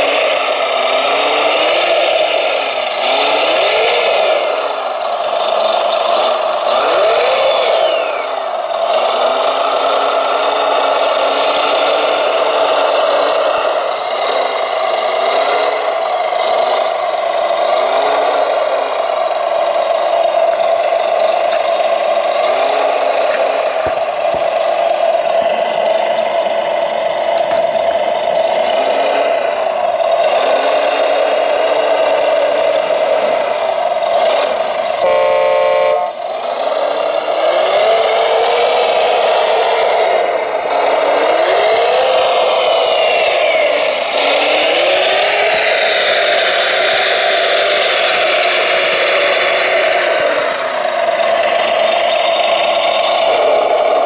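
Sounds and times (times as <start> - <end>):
hydraulic pump whine: 0.0 - 54.0
horn-like tone: 35.0 - 36.2.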